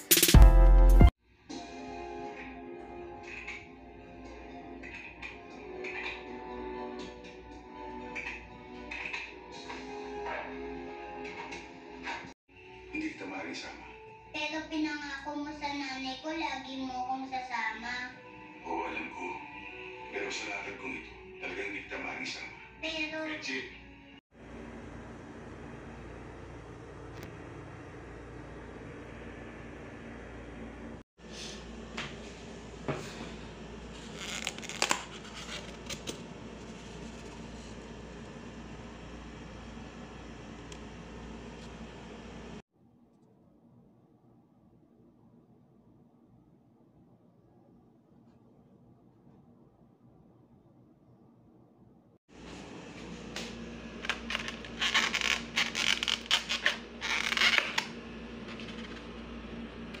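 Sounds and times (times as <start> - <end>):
room hum: 24.1 - 60.0
foam box squeaking and creaking: 34.0 - 36.1, 54.2 - 57.9.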